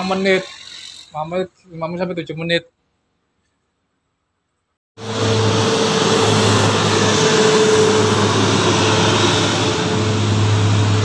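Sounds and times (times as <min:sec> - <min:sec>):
bus engine and tyre noise: 0:05.0 - 0:11.0.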